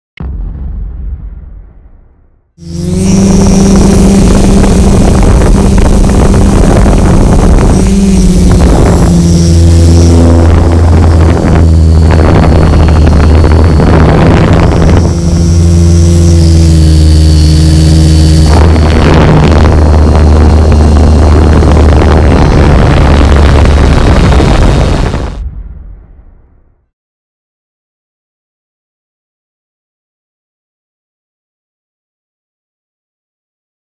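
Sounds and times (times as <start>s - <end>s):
drone propellers buzzing: 2.6s - 25.6s.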